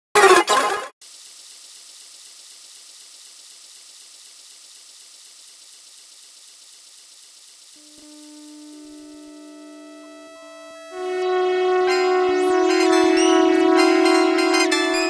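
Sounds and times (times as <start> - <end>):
rushing water hiss: 1.0 - 8.9
held synthesizer notes: 7.8 - 15.0.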